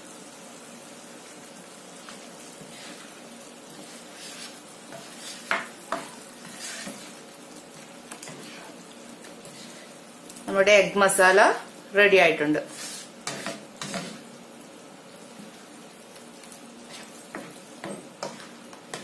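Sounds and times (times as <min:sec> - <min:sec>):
gravy sizzling in a frying pan: 0:00.0 - 0:19.0
spatula scraping a pan: 0:02.0 - 0:10.1, 0:12.6 - 0:14.4, 0:16.8 - 0:19.0.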